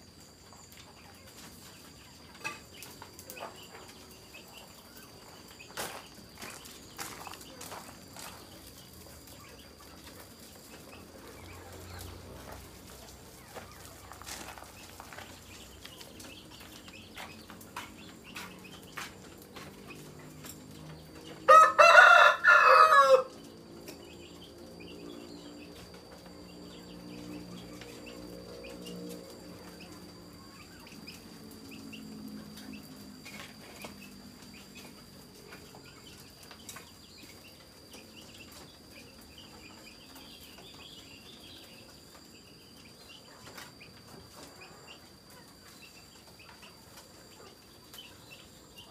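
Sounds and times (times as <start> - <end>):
rooster crowing: 21.3 - 23.5.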